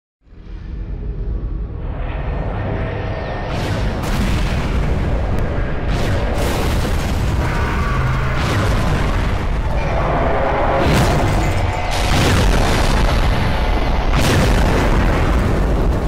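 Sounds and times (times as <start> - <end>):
low rumble: 0.2 - 16.0
music: 0.2 - 16.0
explosion blasts: 3.4 - 16.0.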